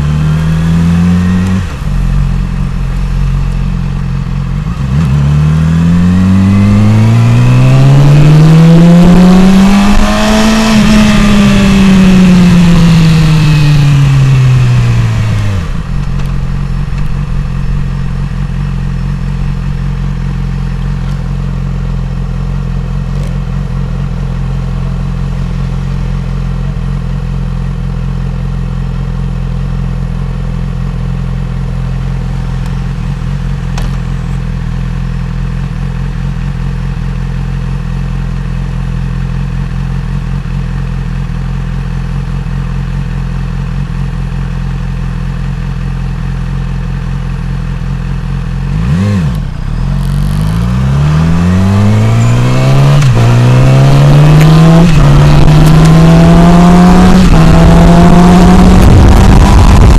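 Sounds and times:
motorcycle engine slowing: 0.0 - 59.9
motorcycle engine idling: 1.6 - 5.0, 10.9 - 48.7
wind rushing over microphone: 54.6 - 59.9.

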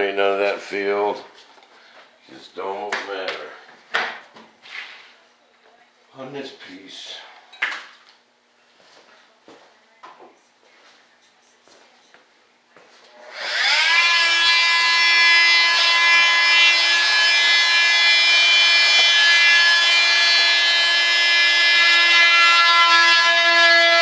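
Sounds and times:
power tool motor whining: 13.1 - 24.0.

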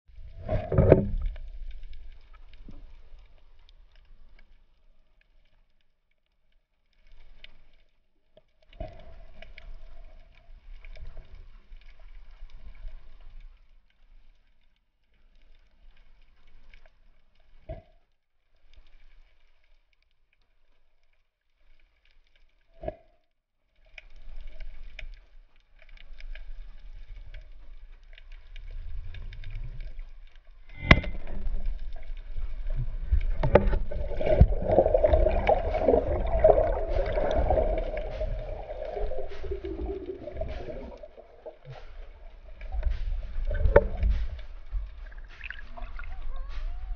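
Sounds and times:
underwater crackling: 23.9 - 46.9.

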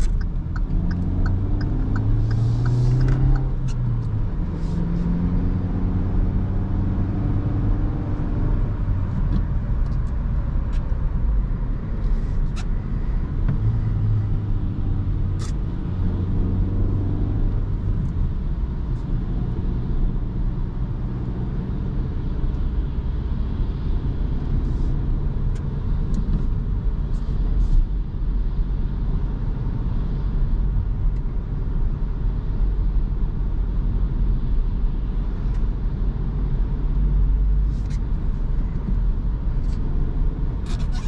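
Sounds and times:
tyre and road rumble: 0.0 - 20.2, 35.4 - 41.0
car engine running: 0.0 - 28.6.

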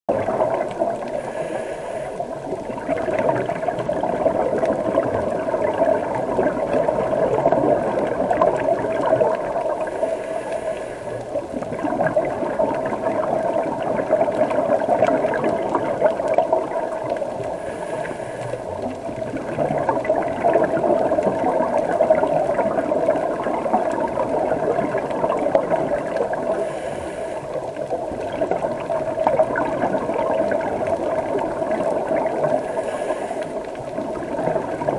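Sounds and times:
underwater bubbles gurgling: 0.1 - 34.9
regulator hiss: 1.0 - 2.4, 9.7 - 11.4, 17.5 - 18.7, 32.5 - 33.7.

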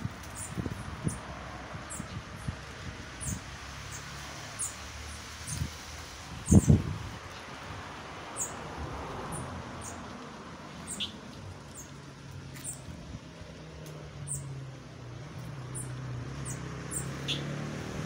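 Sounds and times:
outdoor background noise: 0.0 - 18.0
small birds chirping: 0.2 - 2.6, 3.2 - 5.8, 6.4 - 7.5, 8.3 - 8.6, 9.3 - 10.1, 10.8 - 13.0, 13.8 - 14.6, 15.4 - 17.6.

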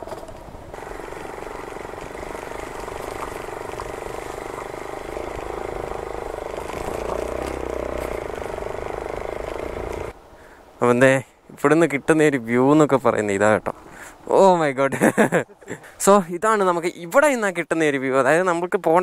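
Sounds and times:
motorcycle engine running: 0.7 - 10.1.

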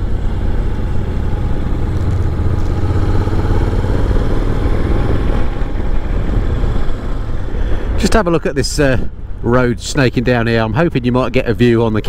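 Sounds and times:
motorcycle engine running: 0.0 - 8.0
wind and road noise: 0.0 - 12.0.

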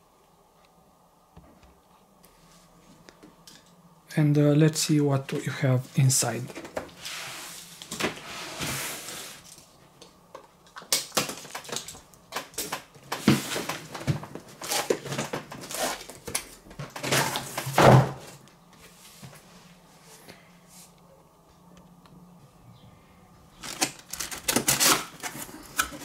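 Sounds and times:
cardboard rustling and scraping: 6.4 - 9.6, 13.0 - 19.8.

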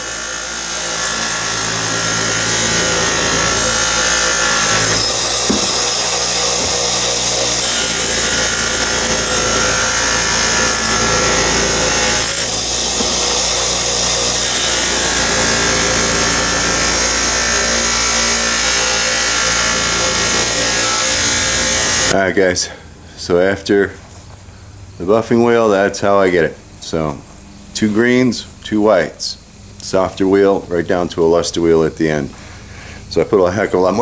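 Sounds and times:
bench buffer motor hum: 0.0 - 22.2
metal rubbing on buffing wheel: 0.0 - 22.2.

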